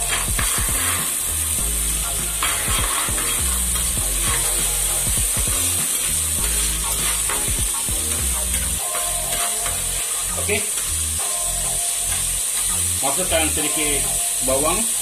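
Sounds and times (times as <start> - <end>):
spices sizzling in hot oil: 0.0 - 15.0
spatula scraping pot: 2.4 - 4.9.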